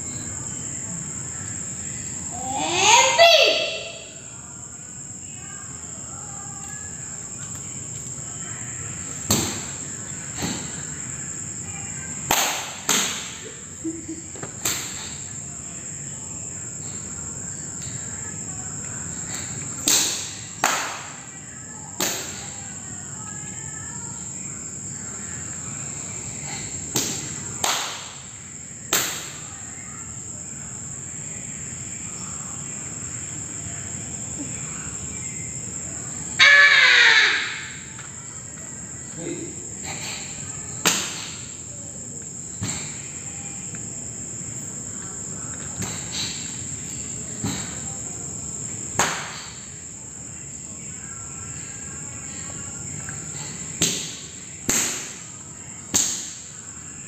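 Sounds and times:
sharp slaps and snaps: 12.3s - 13.4s, 14.6s - 15.2s, 19.3s - 21.3s, 22.0s - 22.5s, 26.9s - 28.3s, 28.9s - 29.4s, 40.8s - 41.5s, 48.9s - 49.6s, 53.8s - 55.3s, 55.9s - 56.5s.

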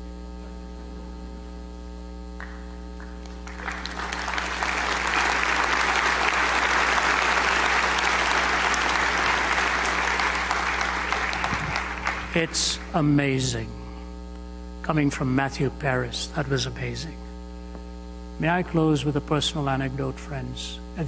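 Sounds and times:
electrical hum: 0.0s - 21.0s
audience applause: 3.0s - 13.0s.

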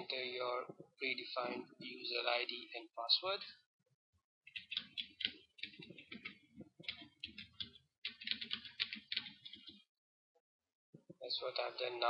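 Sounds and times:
typing on computer keyboard: 4.5s - 9.9s.

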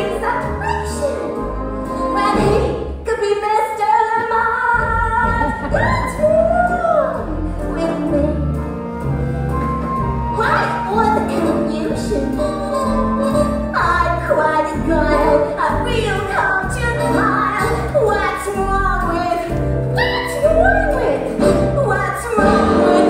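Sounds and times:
instrumental backing music: 0.0s - 3.1s, 3.9s - 23.0s
woman singing: 2.0s - 8.6s, 10.4s - 23.0s.

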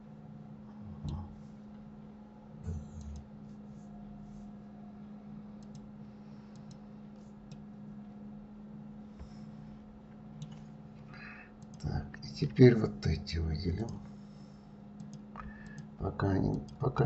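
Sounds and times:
low electrical hum: 0.0s - 17.0s
computer mouse clicks: 2.7s - 3.3s, 5.6s - 5.9s, 6.5s - 6.8s, 10.4s - 10.7s, 11.6s - 11.9s, 15.0s - 15.9s.

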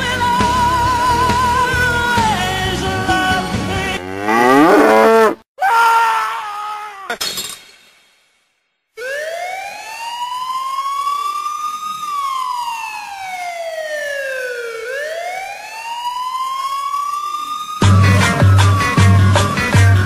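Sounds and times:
siren wailing: 4.0s - 5.4s, 9.0s - 20.0s.

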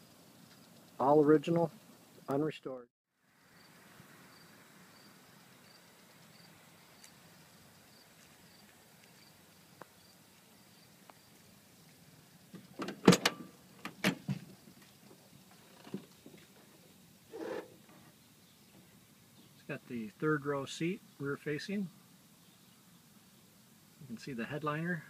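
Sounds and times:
faint outdoor background: 0.0s - 25.0s
tailgate metal clunks and clicks: 12.8s - 14.4s.

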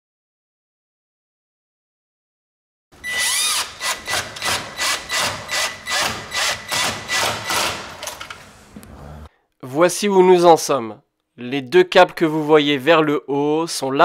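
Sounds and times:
high whine of drill: 3.0s - 7.7s
drill-driver motor pulsing: 3.0s - 8.2s.

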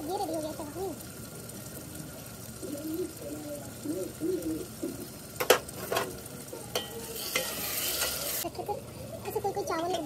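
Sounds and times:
low cooing notes: 2.6s - 5.1s
ladle clinking on steel pot: 6.7s - 8.4s.

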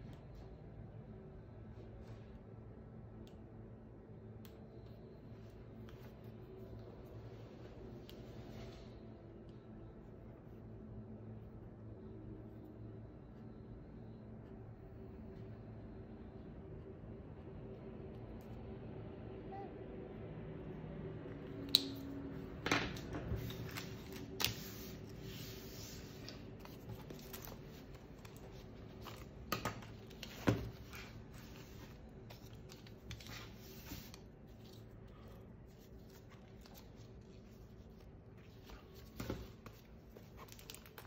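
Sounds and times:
paper and packaging rustling: 35.7s - 41.0s.

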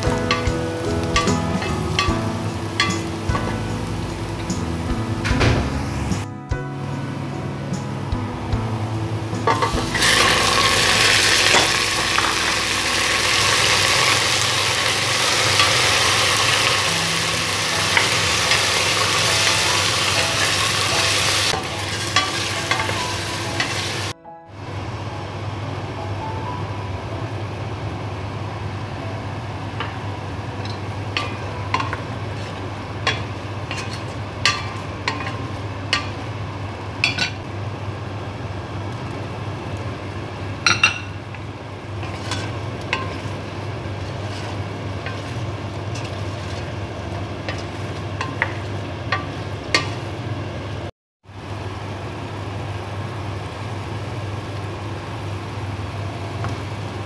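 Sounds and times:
utensils clinking against pot: 0.0s - 3.6s, 9.4s - 12.4s, 13.4s - 24.1s, 30.6s - 36.3s, 37.0s - 37.4s, 42.0s - 43.4s, 44.0s - 46.8s, 47.5s - 50.0s
chicken sizzling in a pot: 0.0s - 6.2s, 8.6s - 24.2s, 28.7s - 57.0s
low hum: 0.0s - 14.1s.

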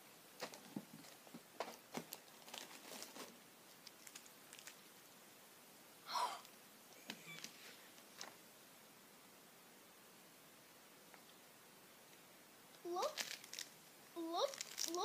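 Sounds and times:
plastic wrapper crinkling: 0.4s - 4.8s, 13.0s - 13.8s, 14.4s - 15.0s.

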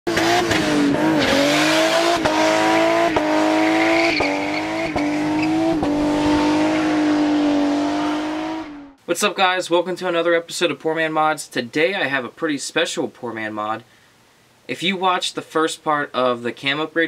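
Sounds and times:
car engine revving high: 0.1s - 9.0s
car tires squealing: 0.2s - 8.7s.

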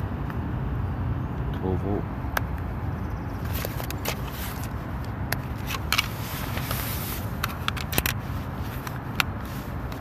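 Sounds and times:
plastic clicks and scraping: 3.5s - 10.0s.

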